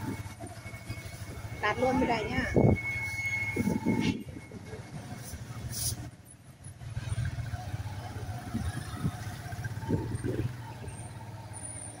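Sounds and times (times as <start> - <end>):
motorbike engine humming: 0.0 - 12.0
wet road noise: 0.0 - 12.0.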